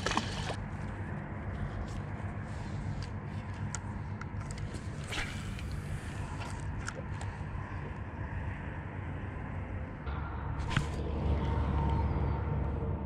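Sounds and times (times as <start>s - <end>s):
low motor hum: 0.0s - 13.0s
fishing rod swish: 4.7s - 6.9s, 10.6s - 11.0s.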